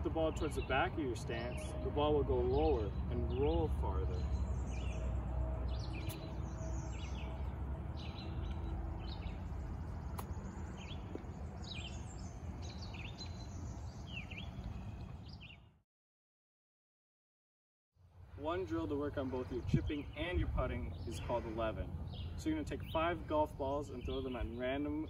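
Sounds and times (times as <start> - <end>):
small birds chirping: 0.0 - 15.7, 19.1 - 25.0
wind rumble on microphone: 0.0 - 15.7, 18.8 - 25.0
faint sharp clicks: 10.1 - 10.4.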